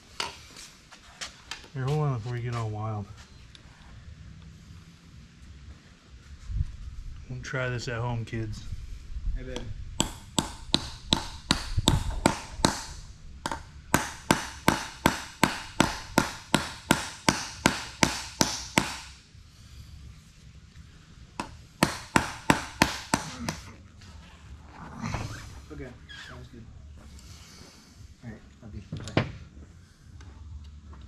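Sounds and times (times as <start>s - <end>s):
hammer blows on metal: 9.6s - 19.2s.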